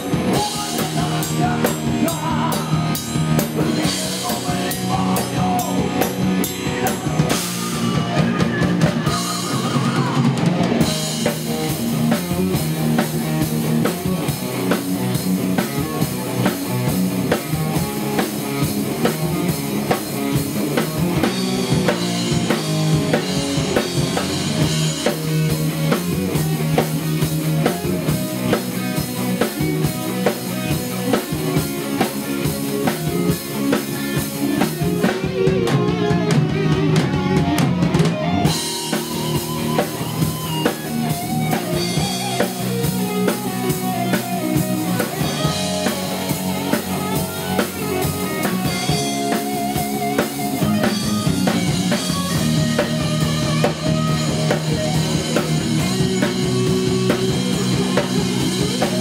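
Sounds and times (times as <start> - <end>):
bass guitar: 0.0 - 59.0
drum kit: 0.0 - 59.0
electric guitars: 0.0 - 59.0
singer on microphone: 0.2 - 6.0, 6.9 - 10.4.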